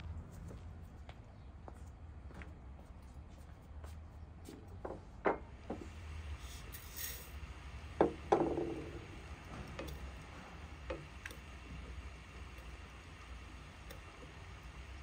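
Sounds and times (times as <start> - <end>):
crockery knocking on wooden table: 4.8 - 5.8, 8.0 - 8.9.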